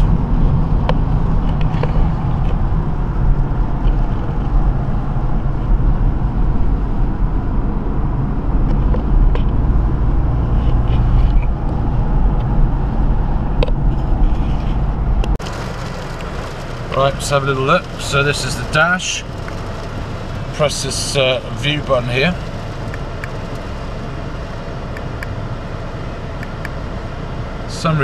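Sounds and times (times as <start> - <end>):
car engine: 0.0 - 28.0
road and tyre rumble: 0.0 - 28.0.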